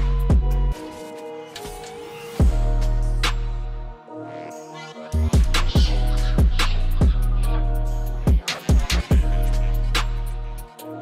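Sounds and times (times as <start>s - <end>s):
music with deep bass and drums: 0.0s - 0.8s, 2.4s - 3.9s, 5.2s - 10.9s.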